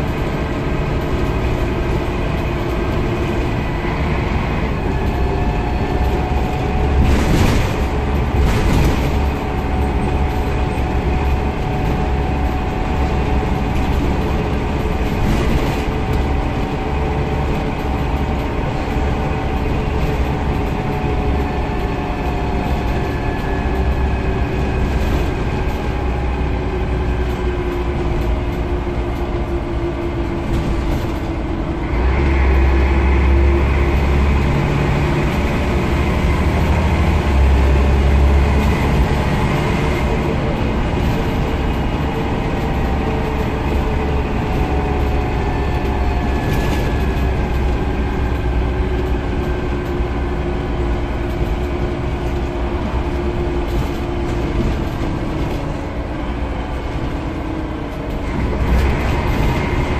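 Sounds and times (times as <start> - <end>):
bus diesel engine droning: 0.0 - 59.9.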